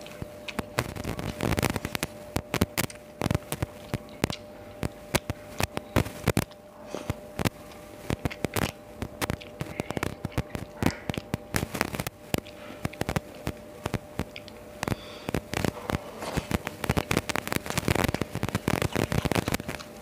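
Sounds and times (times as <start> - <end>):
chewing and eating with fingers: 0.0 - 20.0
faint steady hum: 0.0 - 20.0.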